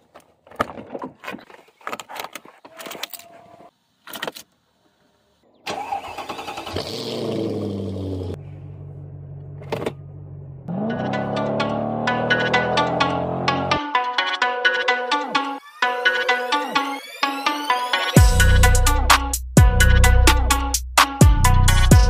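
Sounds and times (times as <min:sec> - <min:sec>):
car engine starting and idling: 0:05.7 - 0:13.8.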